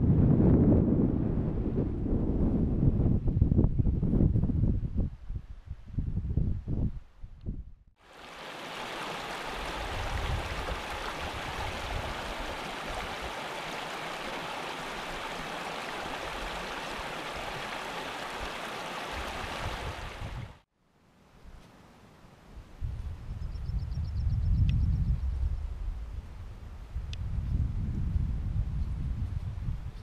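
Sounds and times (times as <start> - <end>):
stream running over rocks: 8.0 - 20.6.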